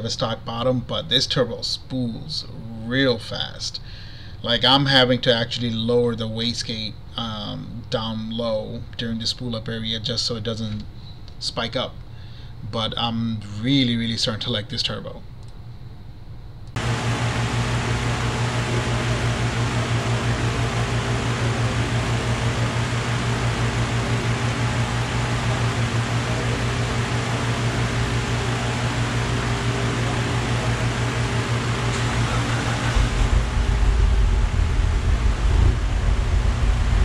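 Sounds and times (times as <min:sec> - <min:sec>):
large cooling fan running: 0:16.6 - 0:37.0.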